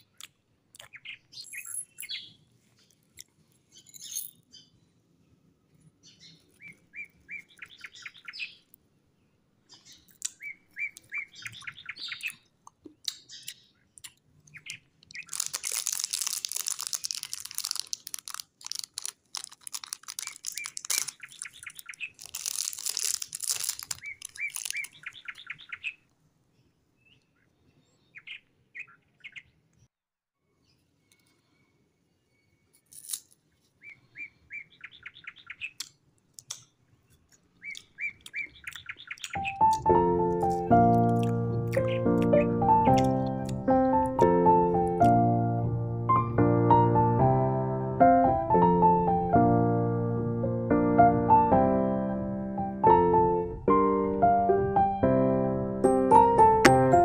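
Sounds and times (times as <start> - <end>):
small birds chirping: 0.0 - 45.2
plastic wrapper rustling: 15.0 - 25.6.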